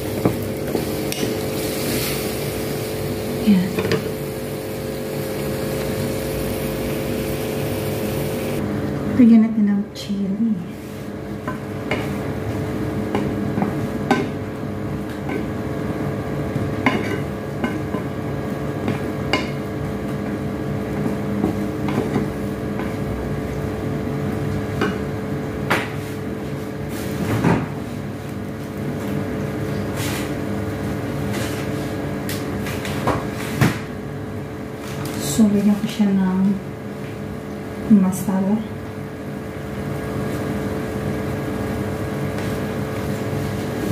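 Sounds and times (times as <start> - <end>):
light sizzle: 0.0 - 8.6
steady hum: 0.0 - 43.9.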